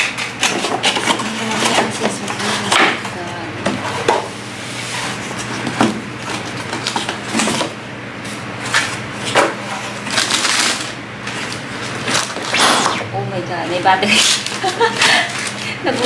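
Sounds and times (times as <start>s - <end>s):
steady low hum: 11.0s - 15.9s.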